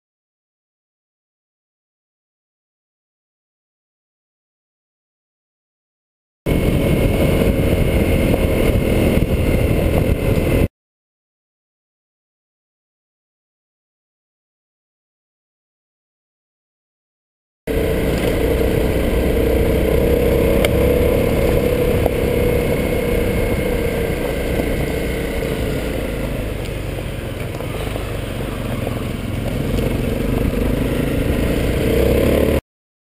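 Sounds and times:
dirt bike engine running: 0:06.5 - 0:10.7, 0:17.7 - 0:32.6.

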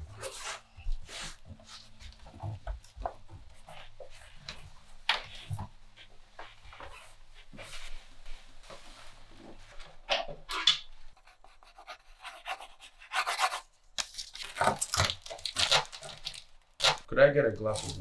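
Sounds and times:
scissors cutting packing tape: 0:14.0 - 0:17.1.

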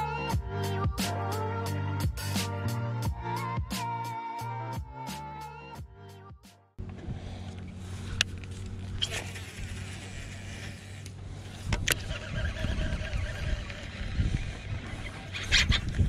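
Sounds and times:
electric trolling motor humming: 0:06.8 - 0:16.0
higher whir: 0:06.8 - 0:16.0.

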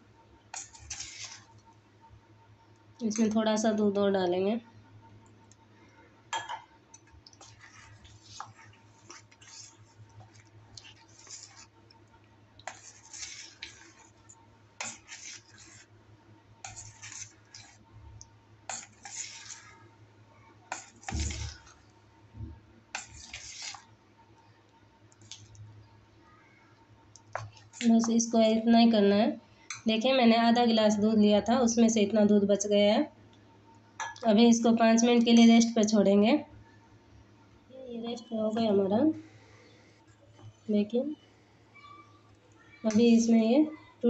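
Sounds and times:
metal spoon stirring in a bowl: 0:00.5 - 0:01.6, 0:06.4 - 0:11.9, 0:12.6 - 0:16.0, 0:16.6 - 0:19.9, 0:20.7 - 0:21.8, 0:22.9 - 0:23.9.

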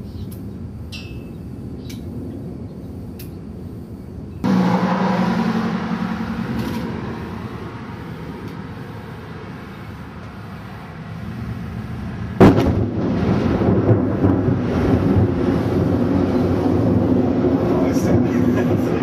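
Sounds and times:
loud thunderclap rumbling: 0:04.4 - 0:08.3, 0:12.4 - 0:19.0
pickup truck driving past: 0:04.4 - 0:10.2.

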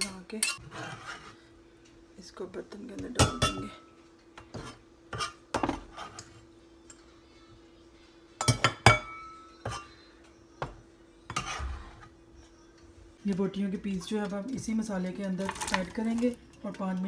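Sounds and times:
knife scraping on plastic board: 0:00.6 - 0:01.4.

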